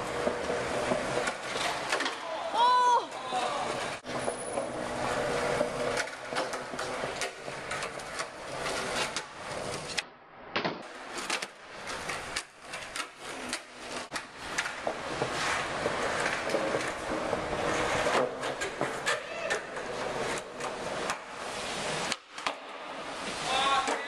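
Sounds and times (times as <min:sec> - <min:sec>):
skateboard clacking on ground: 0:00.0 - 0:10.1, 0:10.8 - 0:24.0
skateboard wheels rolling on concrete: 0:00.0 - 0:24.0.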